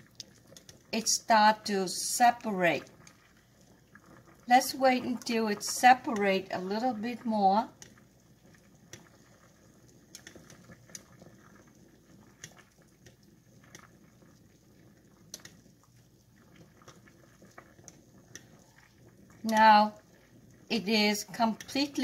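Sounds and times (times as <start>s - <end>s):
water bubbling at a boil: 0.0s - 22.0s
chopsticks clicking in pan: 7.8s - 8.0s, 15.3s - 15.6s.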